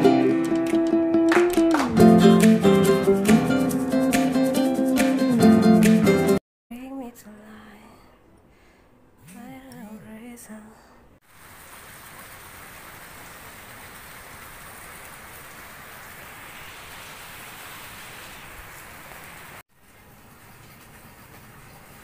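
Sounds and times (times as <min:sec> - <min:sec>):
steady rain falling: 0:11.2 - 0:22.0.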